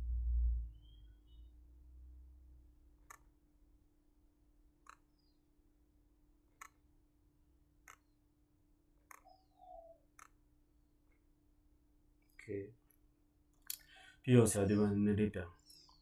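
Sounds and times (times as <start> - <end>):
low hum: 0.0 - 3.0
computer mouse clicks: 3.0 - 3.3, 4.8 - 5.4, 6.5 - 6.8, 7.8 - 8.2, 9.0 - 10.5.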